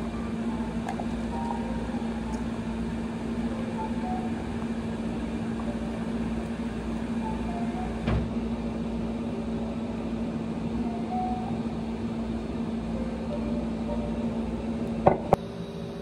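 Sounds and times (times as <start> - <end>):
mechanical hum: 0.0 - 16.0.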